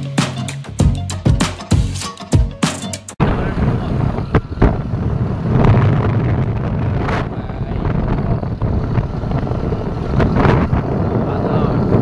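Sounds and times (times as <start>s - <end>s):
motorbike ride rumble: 3.2s - 12.0s
wind buffeting microphone: 3.2s - 12.0s.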